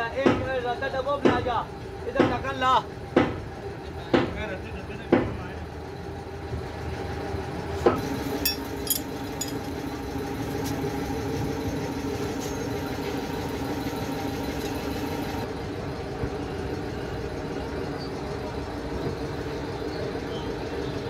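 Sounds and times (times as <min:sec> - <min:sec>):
engine humming: 0:05.8 - 0:21.0
sharp metallic clinks: 0:08.3 - 0:09.7.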